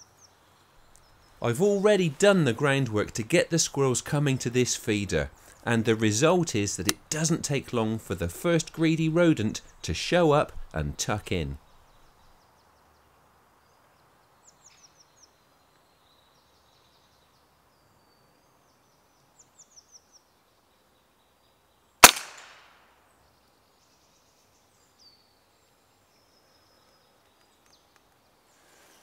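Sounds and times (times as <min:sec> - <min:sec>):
small birds chirping: 0:00.0 - 0:22.0, 0:23.0 - 0:29.0
air rifle shot: 0:22.0 - 0:22.8.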